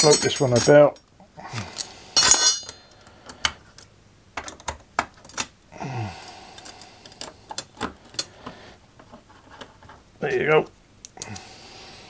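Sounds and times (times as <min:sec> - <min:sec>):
metal screws clicking on metal: 0:01.8 - 0:02.8.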